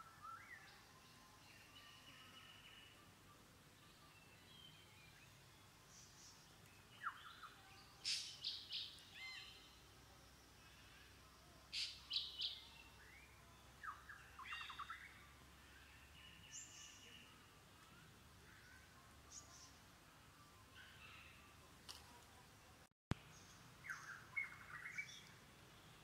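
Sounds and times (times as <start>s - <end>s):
birds chirping: 23.2s - 26.0s.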